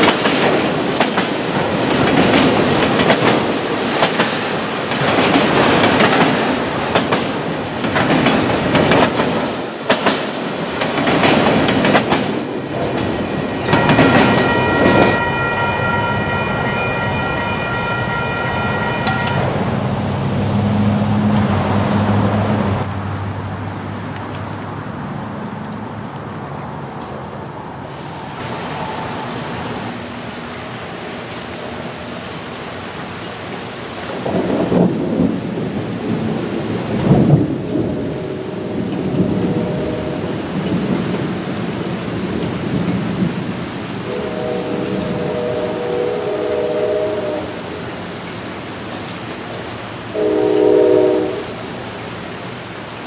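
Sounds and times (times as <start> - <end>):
steady rain: 0.0 - 53.0
crossing bell ringing: 13.2 - 20.1
distant locomotive air horn: 13.7 - 19.6, 37.7 - 40.7, 44.0 - 47.8, 50.1 - 51.8
rolling thunder: 34.1 - 47.5.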